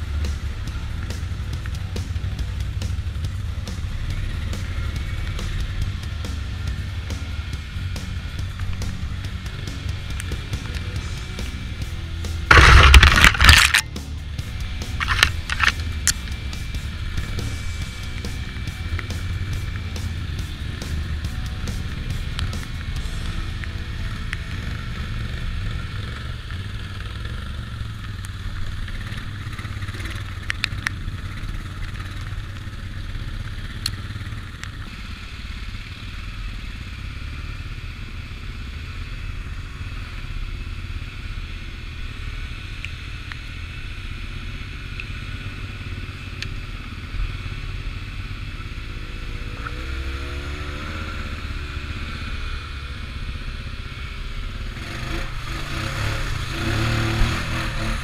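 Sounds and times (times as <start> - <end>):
knocks and rattles over bumps: 0.0 - 24.4
atv engine running: 0.0 - 58.0.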